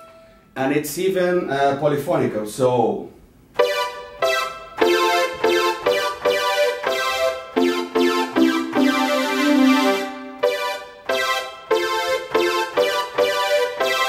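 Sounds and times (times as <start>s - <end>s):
synthesizer chords: 3.6s - 14.0s.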